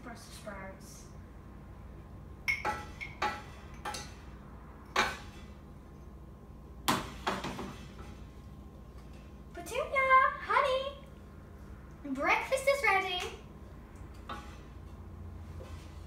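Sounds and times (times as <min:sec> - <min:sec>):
cookware knocking and clinking: 0:02.5 - 0:04.2.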